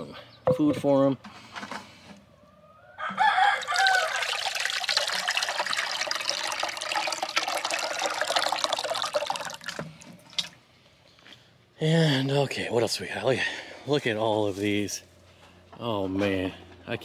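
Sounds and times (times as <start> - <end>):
water pouring into a ceramic dish: 3.6 - 10.5.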